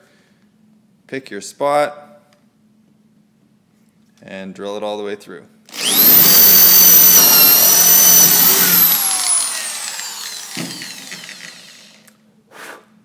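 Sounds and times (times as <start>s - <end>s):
power drill whining: 5.7s - 12.2s.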